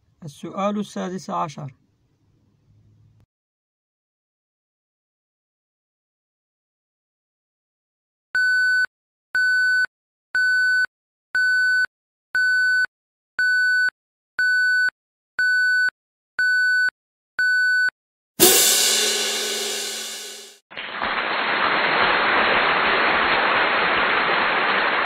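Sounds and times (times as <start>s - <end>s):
timer beeps: 8.4s - 17.9s
cymbal-like crash: 18.4s - 20.6s.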